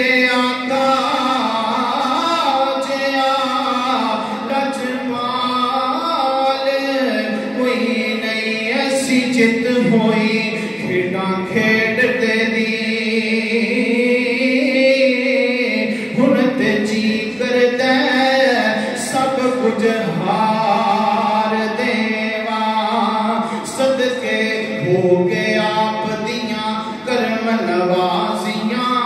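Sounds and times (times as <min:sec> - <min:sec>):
man singing unaccompanied: 0:00.0 - 0:29.0.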